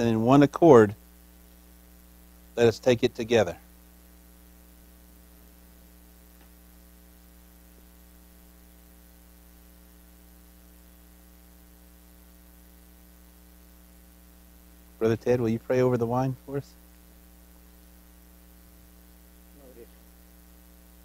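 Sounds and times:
electrical mains hum: 0.0 - 21.0
faint hiss: 0.0 - 21.0.

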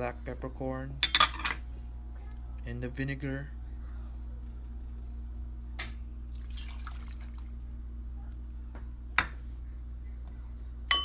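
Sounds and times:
liquid pouring and splashing: 6.3 - 7.6.

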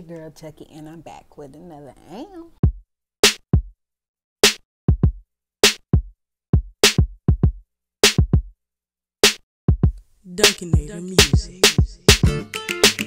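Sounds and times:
hip-hop drum-machine beat: 4.4 - 8.5, 9.7 - 13.0.

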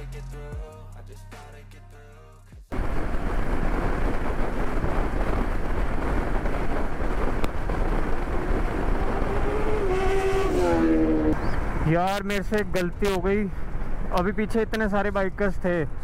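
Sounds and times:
wind rush on microphone: 2.7 - 16.0
motorcycle engine running: 2.8 - 11.7
rising pitched tone: 8.4 - 11.6.

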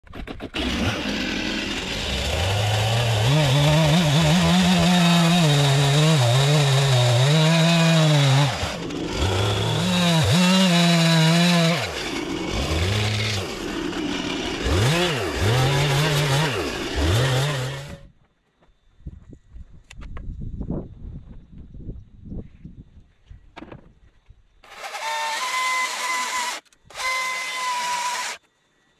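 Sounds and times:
chainsaw cutting log: 0.0 - 18.1, 24.6 - 28.4.

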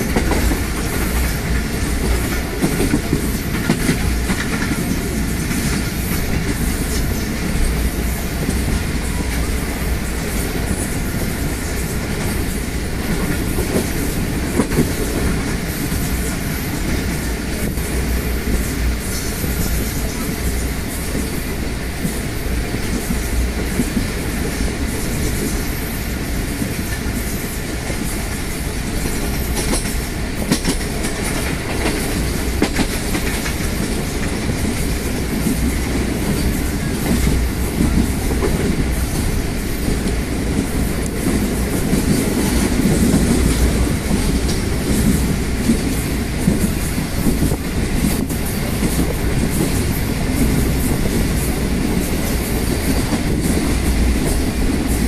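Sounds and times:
wheels clacking over rail joints: 0.0 - 20.3, 27.8 - 55.0
train rumbling: 0.0 - 55.0.

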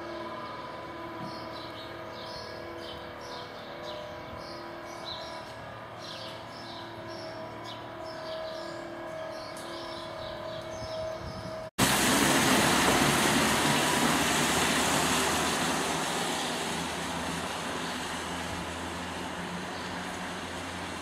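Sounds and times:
tyre hiss on wet street: 11.8 - 21.0
vehicle engine hum: 11.8 - 21.0.

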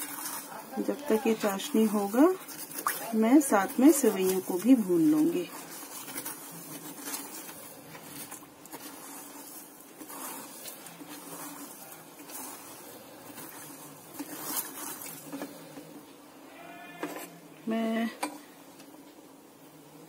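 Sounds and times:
spatula scraping and tapping pot: 0.0 - 16.1, 16.9 - 17.4
spatula swishing in a pot: 0.0 - 16.4.

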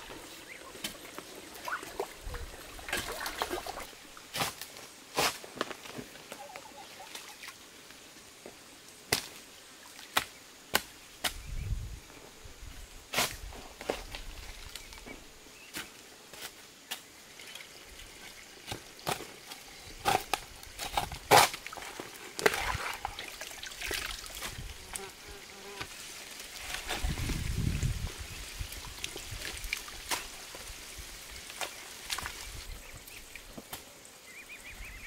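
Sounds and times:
water trickling and splashing: 0.0 - 4.3, 6.2 - 7.8, 17.3 - 19.9, 20.5 - 25.2, 25.8 - 33.5
digging tool chopping into wet soil: 10.1 - 11.5, 20.0 - 23.0.

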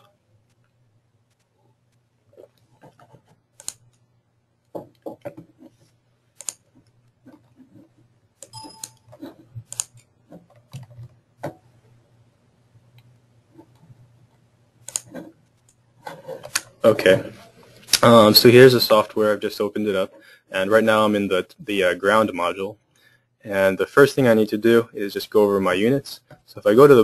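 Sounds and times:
low steady hum: 0.0 - 27.0
computer mouse clicks: 2.4 - 4.1, 6.4 - 7.5, 8.4 - 11.6, 14.8 - 15.8
short tone: 8.5 - 9.1.

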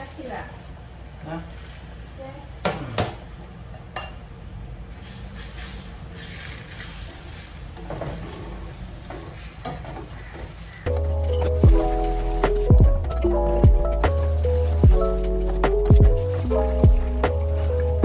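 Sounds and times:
background music: 10.9 - 18.0.

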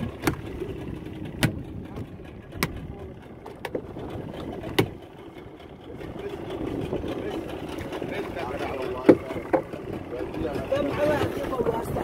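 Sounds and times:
low rumble: 0.0 - 12.0
sharp knocks: 1.4 - 1.6.

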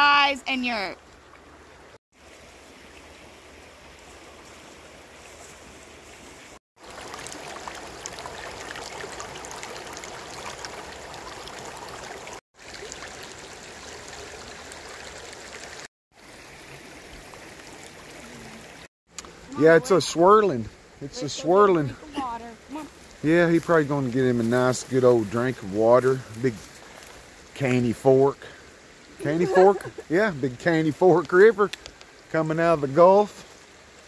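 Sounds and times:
water rushing over rocks: 6.8 - 28.4.

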